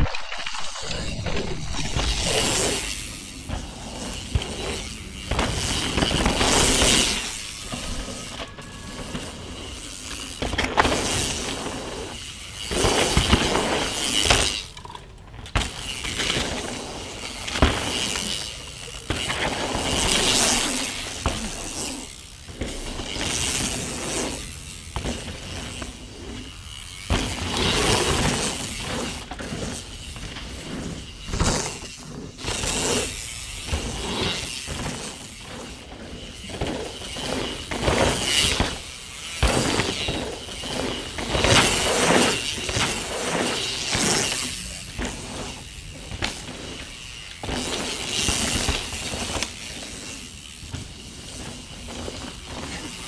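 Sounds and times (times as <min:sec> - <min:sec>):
bike clattering: 0:00.0 - 0:53.0
bike tyres crunching on dirt: 0:00.0 - 0:53.0.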